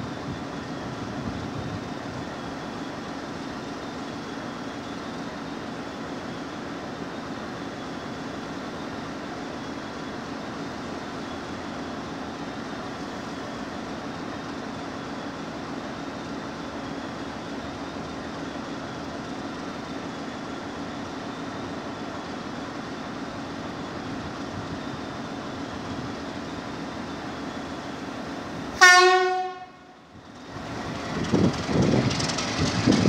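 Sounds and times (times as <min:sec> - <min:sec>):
diesel locomotive idling: 0:00.0 - 0:33.0.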